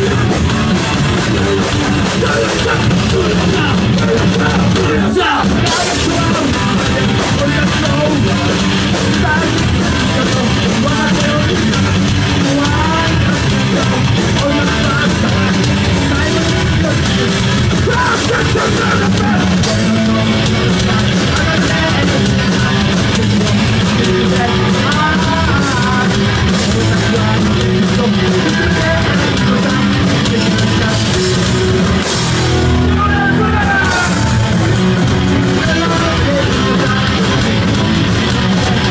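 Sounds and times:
bass: 0.0s - 38.9s
distorted electric guitars: 0.0s - 38.9s
drums: 0.0s - 38.9s
shouted vocals: 32.2s - 37.0s.

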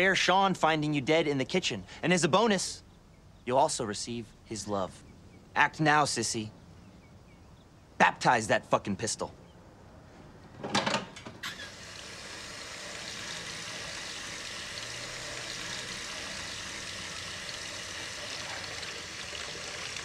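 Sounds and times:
tap water running over metal: 11.4s - 20.0s.

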